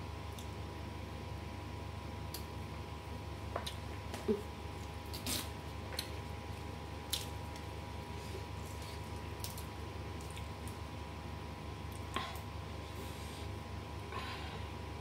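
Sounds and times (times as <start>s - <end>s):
steady low hum: 0.0s - 15.0s
soft squishy food sounds: 3.5s - 11.1s, 11.7s - 12.7s.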